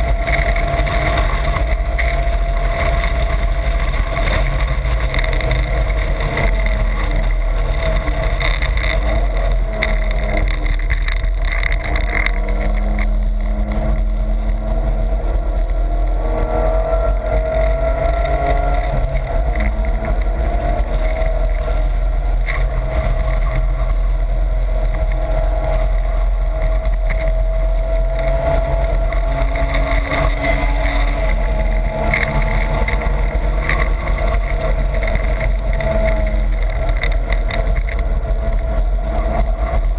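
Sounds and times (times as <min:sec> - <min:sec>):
car engine revving: 0:00.0 - 0:39.9
wind and road noise: 0:00.0 - 0:39.9.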